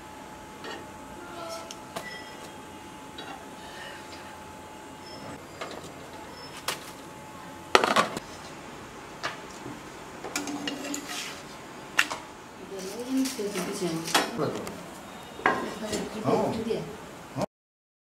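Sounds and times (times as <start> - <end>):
kitchen utensils and dishes clinking: 10.3 - 11.4.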